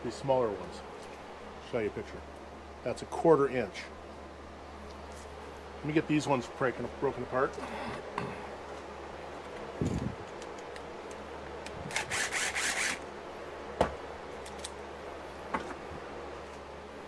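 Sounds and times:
tape tearing from wood: 11.6 - 13.0.

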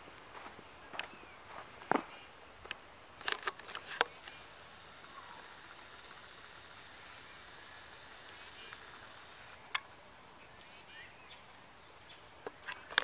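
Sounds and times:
footsteps crunching on snow: 0.0 - 2.3
faint steady hiss: 0.0 - 13.0.

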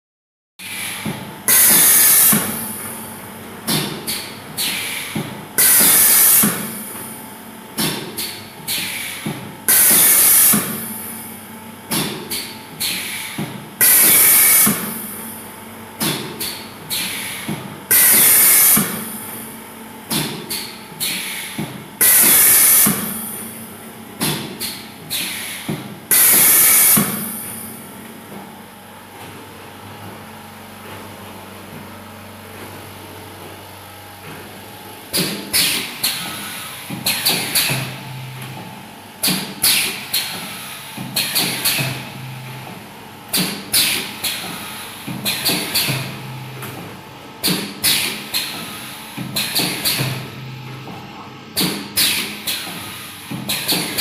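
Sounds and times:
loud hiss of air exhaust: 0.6 - 2.5, 4.6 - 6.6, 8.7 - 11.2, 12.8 - 14.8, 16.9 - 19.3, 21.0 - 23.2, 25.1 - 27.6
steady machine hum: 0.6 - 54.0
pneumatic cylinder clicks and knocks: 39.2 - 42.0, 43.3 - 50.2, 51.6 - 54.0.

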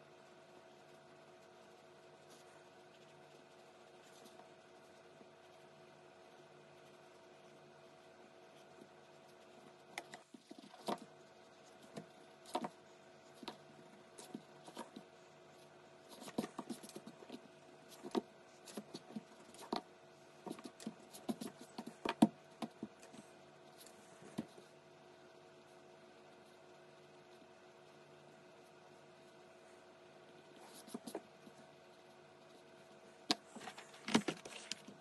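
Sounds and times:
faint steady hum: 0.0 - 35.0
pencil scratching on paper: 16.1 - 19.8, 20.4 - 22.7.

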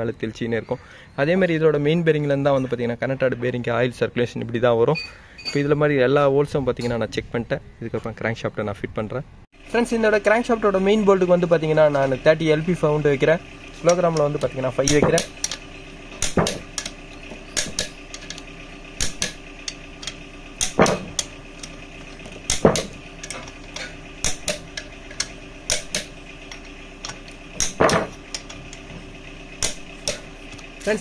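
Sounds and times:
torque wrench clicking: 13.8 - 15.6, 16.2 - 29.0, 29.6 - 30.7.

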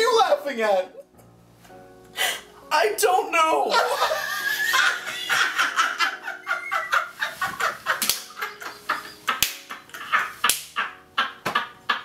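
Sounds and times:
man and woman laughing: 3.7 - 12.0.

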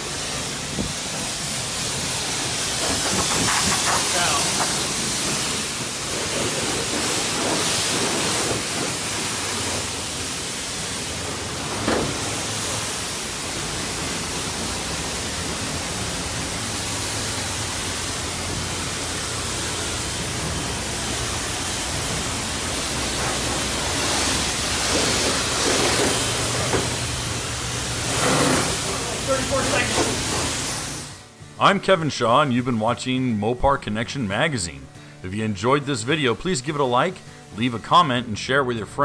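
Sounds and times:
pressure washer spraying: 0.0 - 31.3
water drumming on sheet metal: 0.6 - 30.6.

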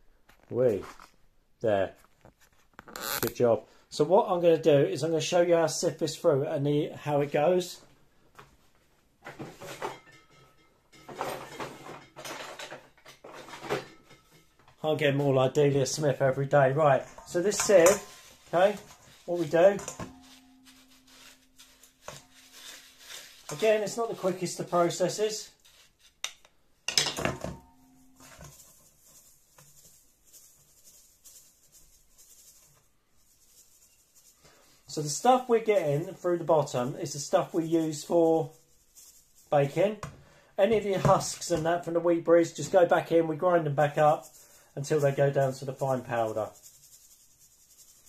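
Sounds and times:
rustling and scraping handling: 1.9 - 3.4, 7.1 - 48.0
metal sieve knocking bowl: 17.0 - 22.8.

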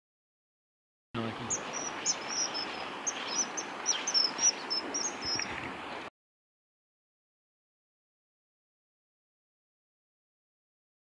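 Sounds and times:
river water rushing: 1.2 - 6.1
bird whistled calls: 1.5 - 5.5.

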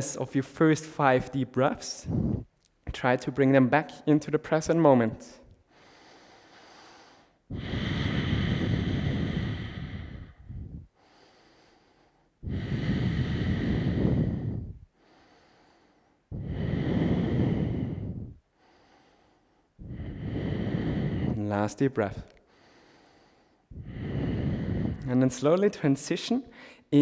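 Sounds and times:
man breathing deeply: 1.9 - 2.6, 5.5 - 25.2, 26.5 - 26.9.

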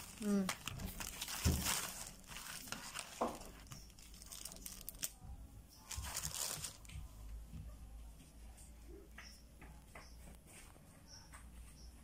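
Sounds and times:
plastic and paper packaging crinkling: 0.0 - 7.0.

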